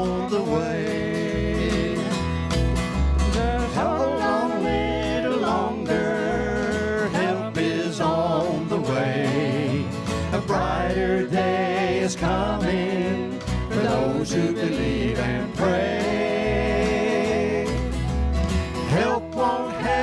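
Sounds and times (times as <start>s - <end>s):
acoustic guitars: 0.0s - 20.0s
bluegrass band playing: 0.0s - 20.0s
woman and man singing: 3.4s - 17.8s, 18.9s - 20.0s.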